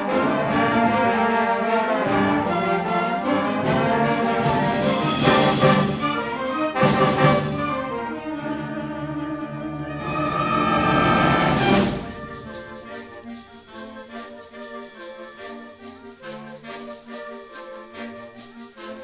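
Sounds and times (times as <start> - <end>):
concert band playing: 0.0 - 13.8.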